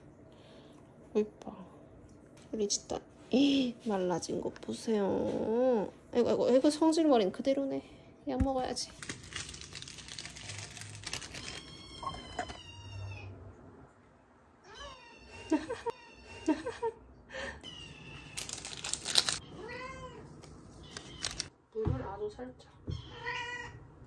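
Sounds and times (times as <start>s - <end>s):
cat meowing: 11.3s - 13.4s, 19.4s - 21.5s, 22.9s - 23.8s.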